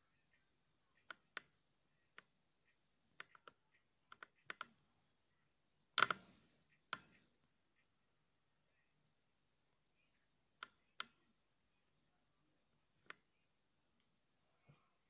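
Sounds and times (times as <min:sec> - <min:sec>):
phone being tapped and handled: 0:06.0 - 0:07.2.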